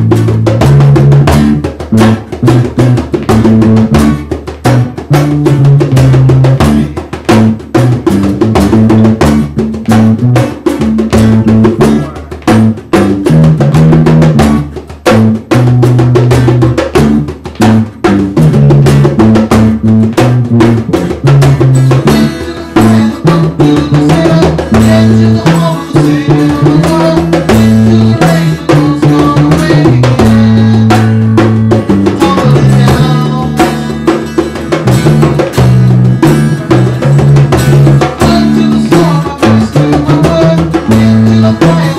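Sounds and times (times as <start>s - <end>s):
electric bass: 0.0s - 41.9s
hand drum beaten with palms: 0.0s - 41.9s
strummed acoustic guitar: 0.0s - 41.9s.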